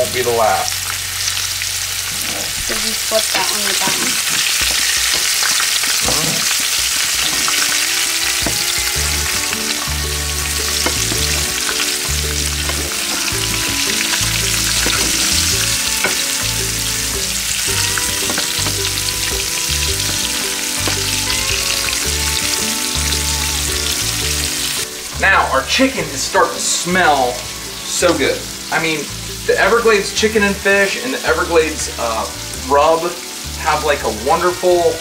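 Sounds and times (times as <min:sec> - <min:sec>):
food sizzling in hot oil: 0:00.0 - 0:35.0
metal tongs in a pan: 0:10.6 - 0:16.8, 0:17.7 - 0:21.2.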